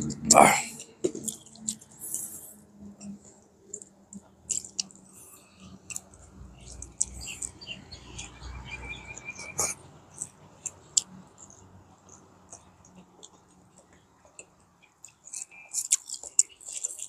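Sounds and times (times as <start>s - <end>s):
wet eating smacks and clicks: 0.0s - 2.4s, 3.0s - 8.6s, 9.3s - 17.0s
faint bird chirps: 7.0s - 9.8s.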